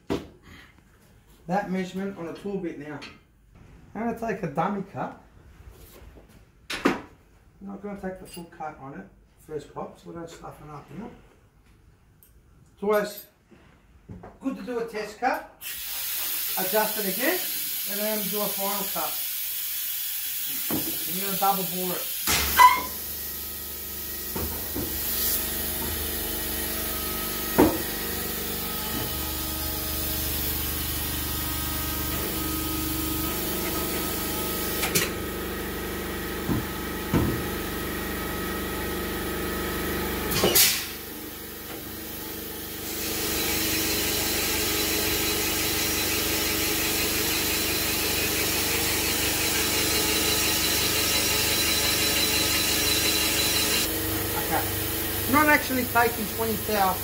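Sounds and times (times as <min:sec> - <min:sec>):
thin high whine: 0:22.5 - 0:23.3
boring machine running: 0:42.6 - 0:57.0.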